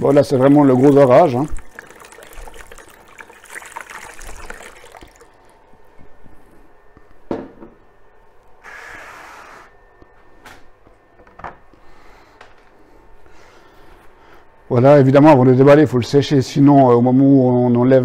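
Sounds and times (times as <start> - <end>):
water splashing into plastic basin: 0.0 - 5.5
water dripping: 0.0 - 5.6.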